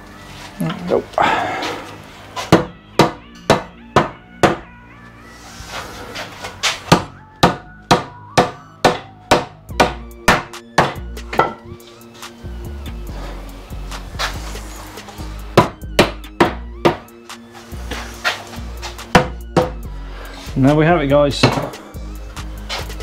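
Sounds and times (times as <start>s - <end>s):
rubber mallet knocking wood: 2.5s - 4.6s, 6.9s - 11.6s, 15.6s - 17.1s, 19.2s - 19.8s.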